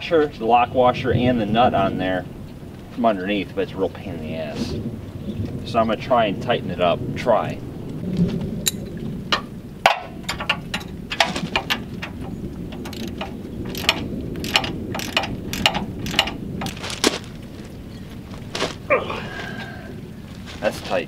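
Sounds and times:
steady low background noise: 0.0 - 21.0
wrench clicking on metal nut: 10.3 - 16.8.

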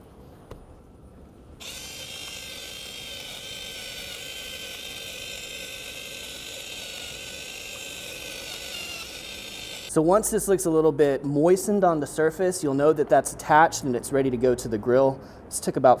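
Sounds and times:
electric spice grinder whining: 1.6 - 10.0.

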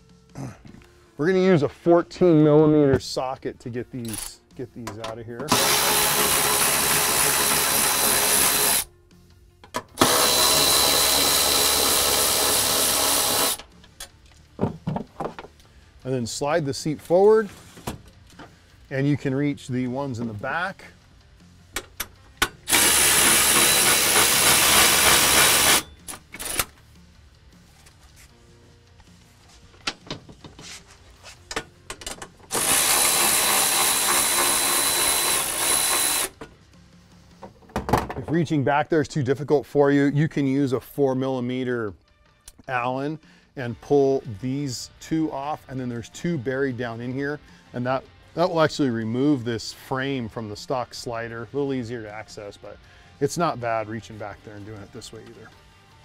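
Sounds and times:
cordless power ratchet running: 5.5 - 8.9, 10.0 - 13.6, 22.7 - 26.7, 32.5 - 36.4.

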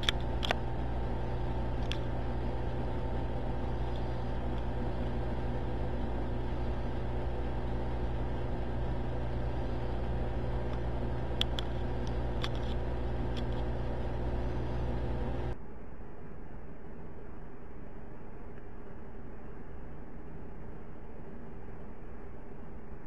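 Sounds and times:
low mechanical hum: 0.0 - 23.0
faint sharp clicks: 10.7 - 13.7.

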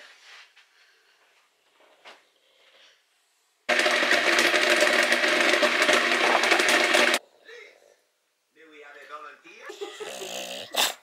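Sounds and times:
kitchen appliance motor humming: 3.7 - 7.2.

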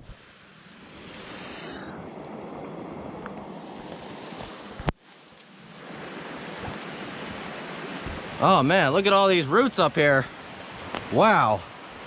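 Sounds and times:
creek water rushing: 0.0 - 12.0
rain falling in forest: 3.2 - 12.0.

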